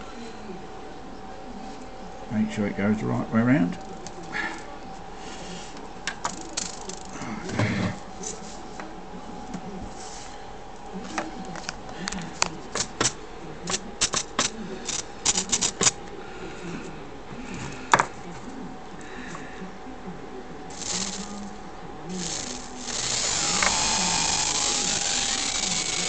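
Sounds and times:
small parts clicking: 0:06.3 - 0:07.1, 0:14.0 - 0:16.0, 0:20.7 - 0:21.4
tiny motor whirring: 0:20.7 - 0:21.5, 0:22.1 - 0:26.0.

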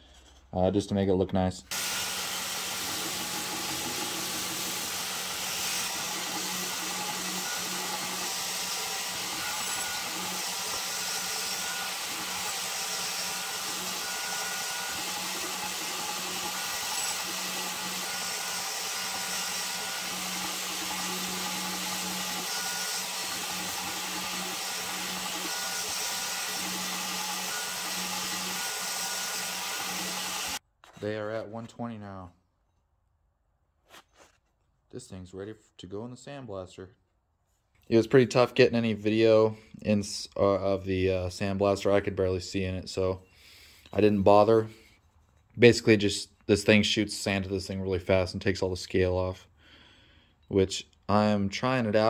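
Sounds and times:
abrasive belt grinding steel: 0:01.7 - 0:30.6.

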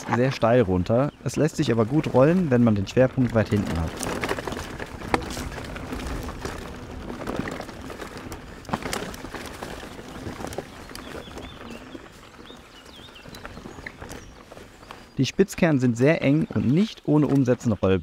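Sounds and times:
bike tyres rolling on dirt: 0:00.0 - 0:18.0
bike knocks and rattles: 0:00.9 - 0:15.1
bird chirping: 0:09.6 - 0:17.9.

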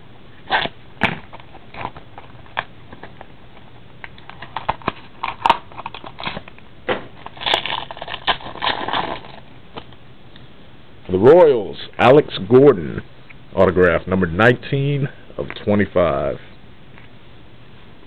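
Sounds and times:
cellophane wrapper crinkling: 0:04.1 - 0:06.5, 0:07.2 - 0:10.0.

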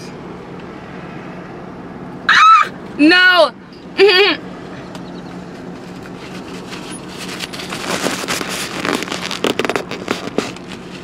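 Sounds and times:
short cry: 0:02.3 - 0:02.8
rustling handling noise: 0:05.5 - 0:11.0.

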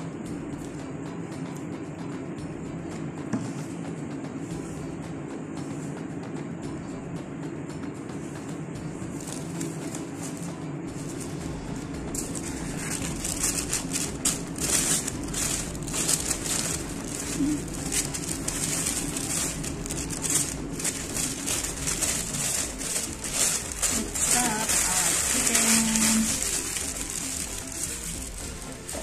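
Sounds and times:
paper crinkling and rustling: 0:09.1 - 0:29.0.

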